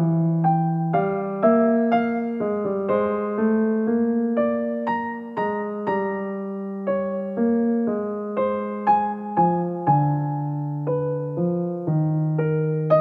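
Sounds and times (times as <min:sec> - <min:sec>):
gentle piano melody: 0:00.0 - 0:13.0.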